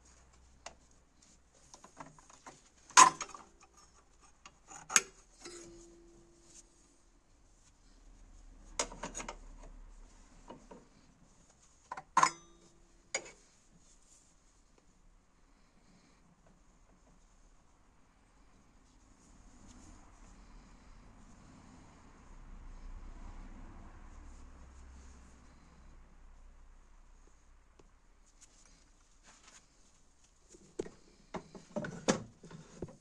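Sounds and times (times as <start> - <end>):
light rubbing: 0.0 - 7.0.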